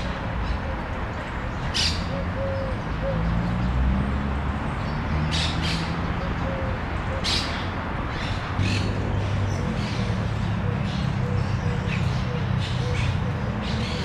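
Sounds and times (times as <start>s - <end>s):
low rumble of city traffic: 0.0s - 14.0s
birds squawking: 5.3s - 14.0s.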